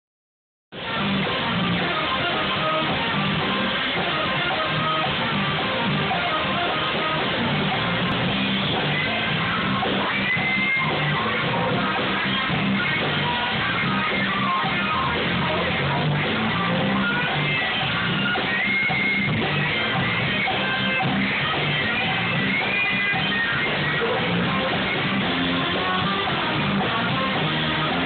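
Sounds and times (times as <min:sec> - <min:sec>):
drums: 0:00.7 - 0:28.0
electric guitar: 0:00.7 - 0:28.0
live band playing: 0:00.8 - 0:28.0.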